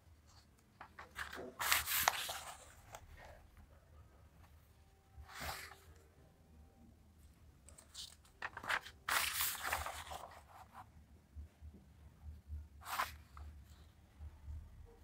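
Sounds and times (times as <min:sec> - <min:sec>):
paper page rustling: 0:00.4 - 0:03.4, 0:07.7 - 0:10.8, 0:12.8 - 0:13.4.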